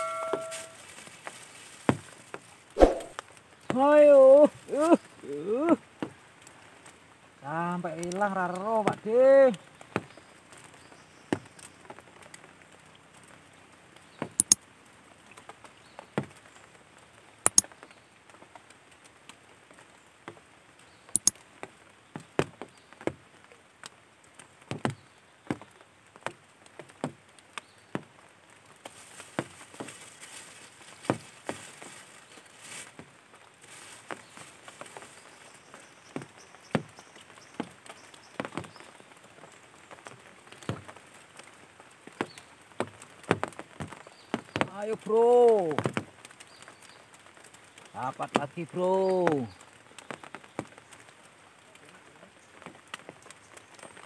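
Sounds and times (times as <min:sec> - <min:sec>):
light clicks and taps: 0:14.2 - 0:14.6, 0:17.4 - 0:17.8, 0:21.1 - 0:21.7.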